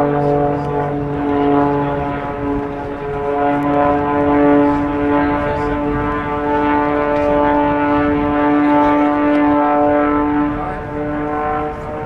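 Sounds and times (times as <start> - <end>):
propeller plane engine droning: 0.0 - 12.0.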